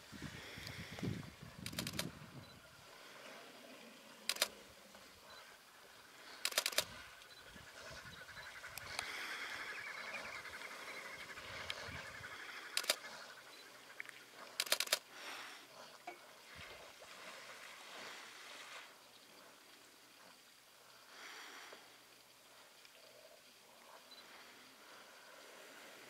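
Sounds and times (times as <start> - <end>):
faint background hiss: 0.0 - 26.0
camera shutter clicks: 1.6 - 2.1, 4.3 - 4.6, 6.4 - 7.0, 12.8 - 13.0, 14.6 - 15.0.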